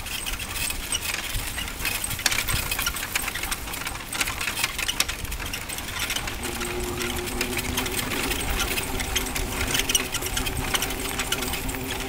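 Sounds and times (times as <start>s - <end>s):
cart wheels clattering on dirt: 0.0s - 12.0s
steady hum: 6.1s - 12.0s
low rumble: 6.2s - 12.0s.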